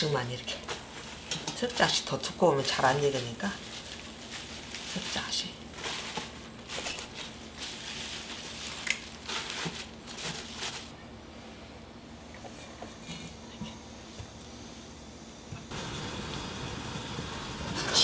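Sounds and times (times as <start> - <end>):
leaves rustling and crinkling: 0.0 - 11.0.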